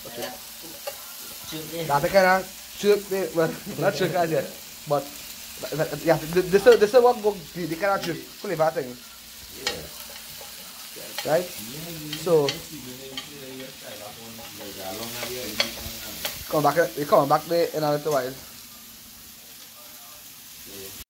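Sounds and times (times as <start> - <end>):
metal spoon scraping a pan: 0.0 - 1.1, 9.6 - 16.5
food sizzling: 0.0 - 21.0
spoon tapping on a pan: 14.6 - 16.4.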